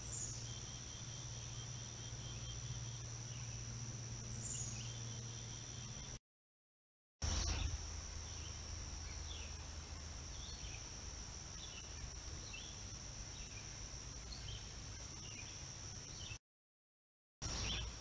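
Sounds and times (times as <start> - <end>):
bird chirps: 0.0 - 3.6, 4.3 - 6.1, 17.4 - 18.0
insects droning: 0.0 - 6.2, 7.2 - 16.4, 17.4 - 18.0
low hum: 0.0 - 6.2.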